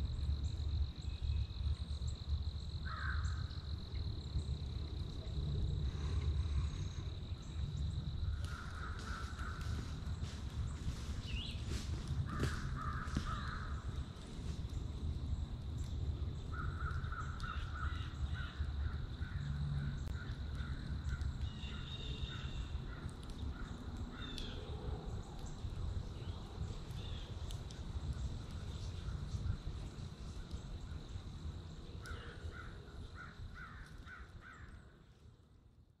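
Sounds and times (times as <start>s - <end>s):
steady low rumble: 0.0s - 35.8s
crows cawing: 2.8s - 3.4s, 8.4s - 10.0s, 12.2s - 13.9s, 16.5s - 24.6s, 32.0s - 34.8s.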